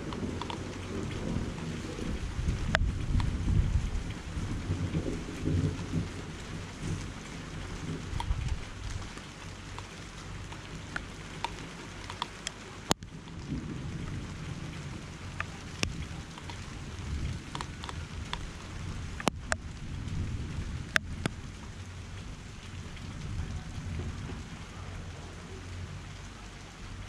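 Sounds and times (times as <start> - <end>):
drops ticking near microphone: 0.0 - 3.4, 6.8 - 14.2, 15.4 - 20.2
low rumble: 0.0 - 12.1, 13.0 - 27.0
steady rain falling: 0.0 - 27.0.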